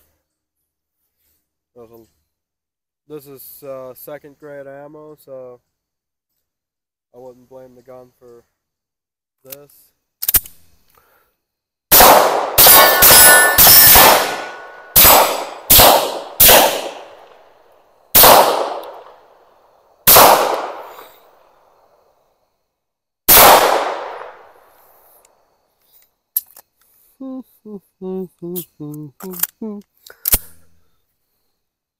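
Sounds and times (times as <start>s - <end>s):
pistol shots with echo: 11.9s - 17.5s, 18.1s - 19.3s, 20.0s - 21.0s, 23.3s - 24.6s.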